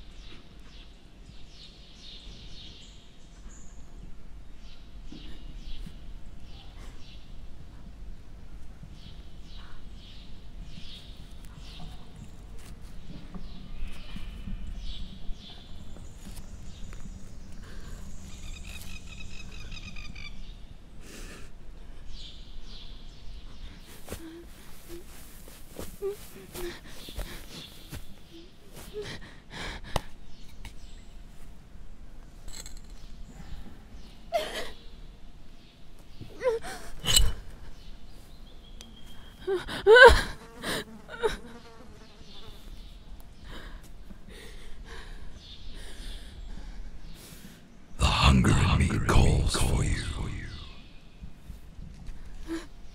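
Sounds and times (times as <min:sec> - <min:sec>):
birdsong: 0:00.0 - 0:08.0, 0:08.8 - 0:21.0, 0:26.6 - 0:29.0, 0:32.8 - 0:36.4, 0:37.0 - 0:39.5, 0:41.6 - 0:48.0.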